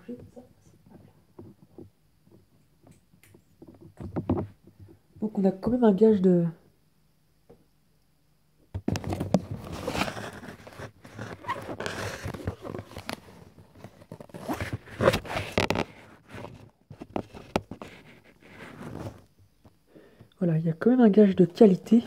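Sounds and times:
cardboard and paper rustling: 0:08.8 - 0:19.3.

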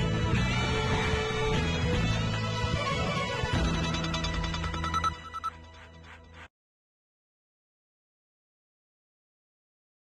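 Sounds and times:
news theme music with chimes: 0:03.6 - 0:06.0.

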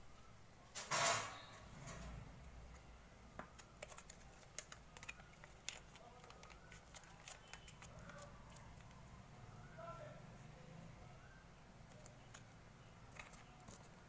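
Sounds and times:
plastic sachet crinkling: 0:03.6 - 0:09.0.

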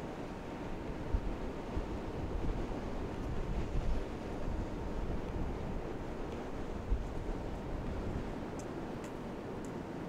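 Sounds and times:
ocean surf on beach: 0:00.0 - 0:10.0
faint high ticks: 0:08.5 - 0:09.8.

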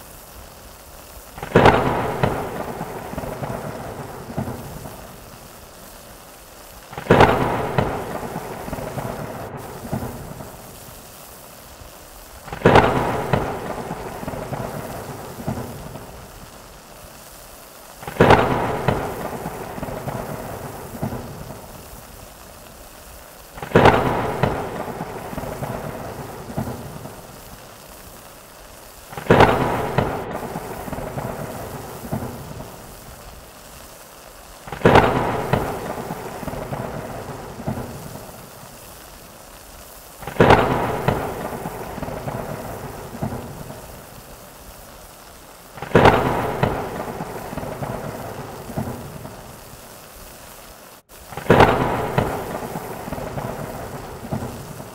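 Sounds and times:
steady rain: 0:00.0 - 0:54.9
thunder claps: 0:01.4 - 0:05.4, 0:06.9 - 0:10.9, 0:12.4 - 0:16.6, 0:18.0 - 0:22.2, 0:23.6 - 0:27.6, 0:29.1 - 0:33.3, 0:34.7 - 0:38.7, 0:40.2 - 0:44.1, 0:45.8 - 0:49.6, 0:51.3 - 0:54.9.

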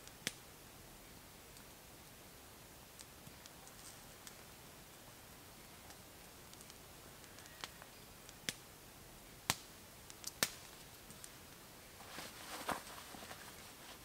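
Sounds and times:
short rustle: 0:11.9 - 0:14.0.

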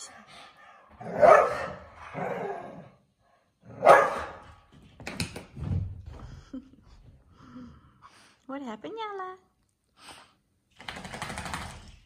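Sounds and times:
loud dog barks: 0:01.0 - 0:02.4, 0:03.7 - 0:04.5.

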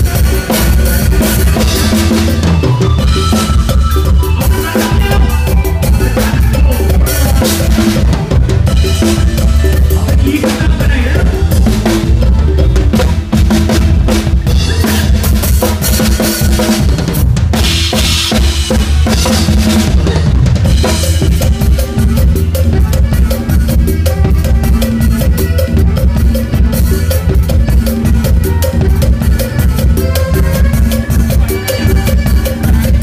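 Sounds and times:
drum kit played fast: 0:00.0 - 0:33.0
live band playing: 0:00.0 - 0:33.0.

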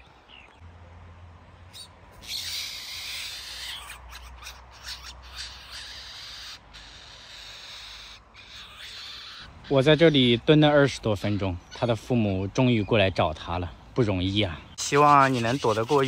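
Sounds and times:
fledgling bird rasping calls: 0:01.7 - 0:12.1, 0:14.7 - 0:16.0.

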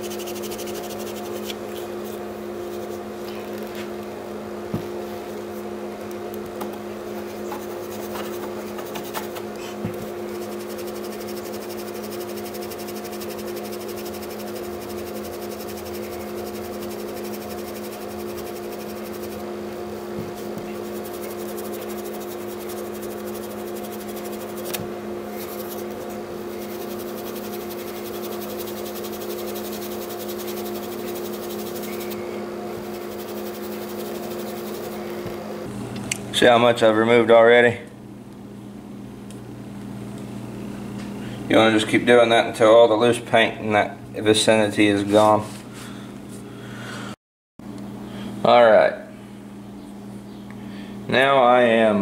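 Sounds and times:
fingers scratching paint: 0:00.0 - 0:01.6, 0:07.2 - 0:19.5, 0:20.4 - 0:24.8, 0:25.4 - 0:32.2, 0:32.8 - 0:35.0
steady machine hum: 0:00.0 - 0:52.0.

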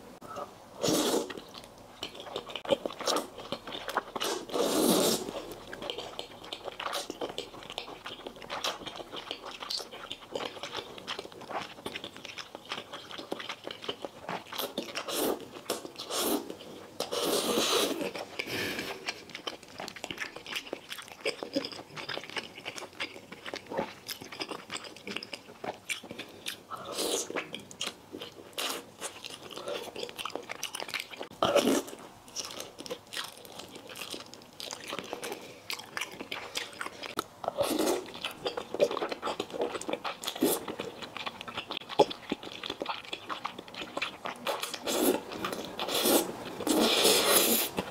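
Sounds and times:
person slurping noodles: 0:00.8 - 0:01.4, 0:04.2 - 0:05.4, 0:16.0 - 0:19.0, 0:44.7 - 0:47.8
chewing with wet mouth noises: 0:01.1 - 0:47.9.

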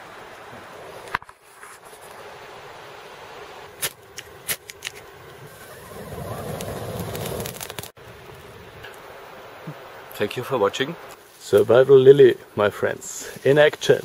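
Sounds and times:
sharp crackles: 0:03.7 - 0:09.1.

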